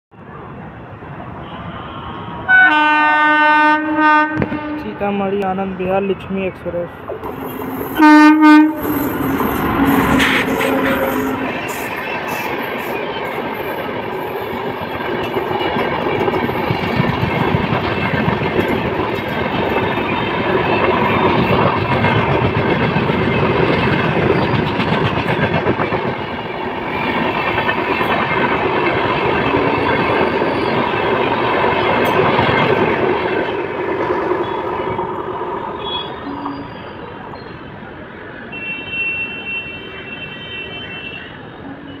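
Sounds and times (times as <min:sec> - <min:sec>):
train wheels clickety-clack: 0:08.8 - 0:35.3.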